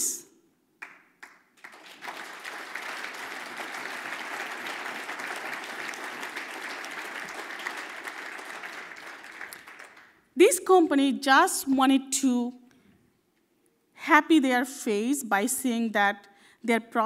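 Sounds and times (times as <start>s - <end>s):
audience applauding: 0.8s - 10.2s.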